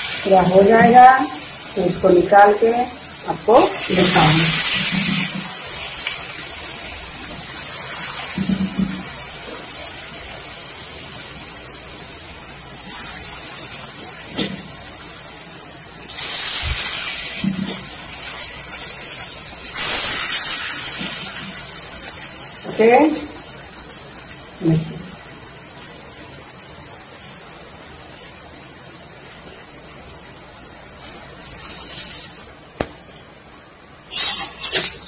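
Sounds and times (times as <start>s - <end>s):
food sizzling in hot oil: 0.0s - 35.0s.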